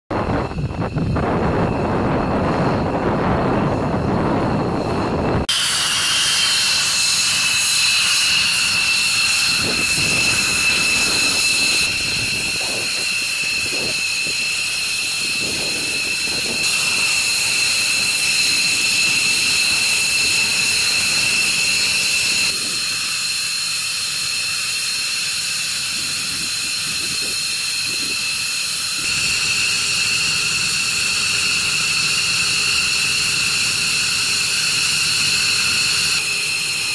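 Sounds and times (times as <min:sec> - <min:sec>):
wind rumbling on microphone: 0:00.1 - 0:05.5, 0:07.0 - 0:23.1, 0:25.8 - 0:29.3
jet engines whining: 0:00.1 - 0:36.9.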